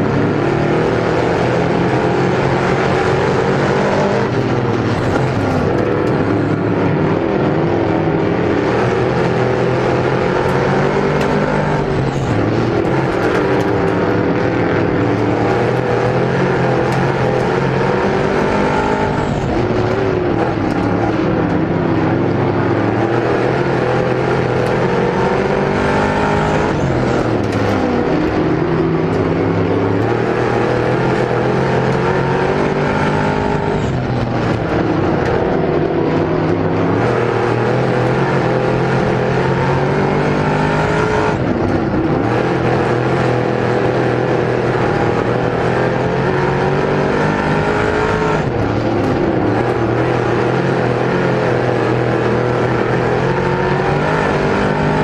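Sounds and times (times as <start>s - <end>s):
racing car engine revving: 0.0s - 55.0s.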